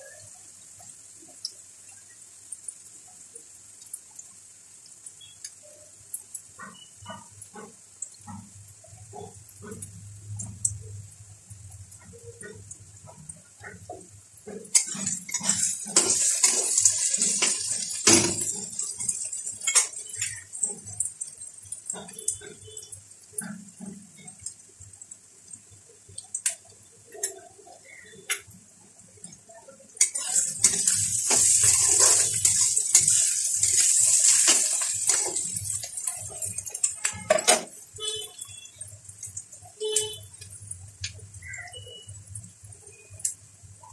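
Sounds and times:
onions sizzling in a pan: 8.6 - 24.6, 25.5 - 43.9
metal spatula scraping a pan: 14.5 - 20.9, 30.0 - 38.3.

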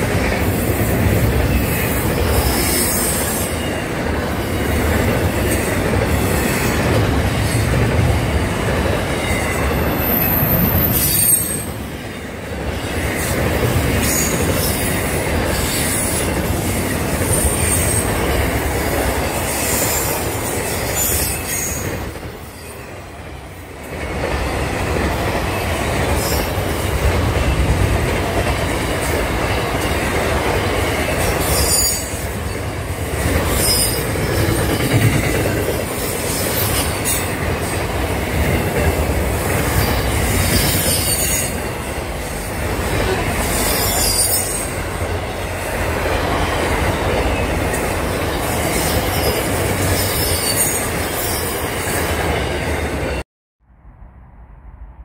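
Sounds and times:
freight train rumbling past: 0.0 - 55.0
high-pitched wheel squeals: 10.0 - 11.7.

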